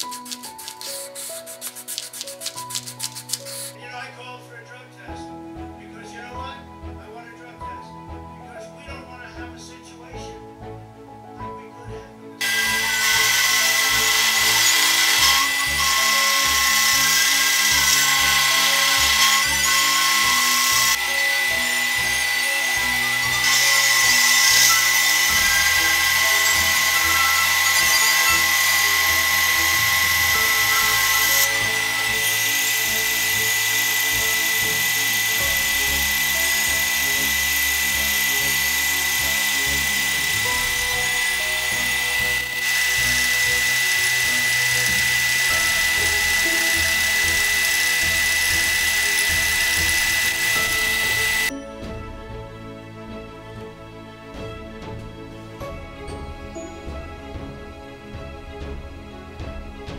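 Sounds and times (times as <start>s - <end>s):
background music: 0.0s - 59.9s
milling machine whining: 12.4s - 51.5s.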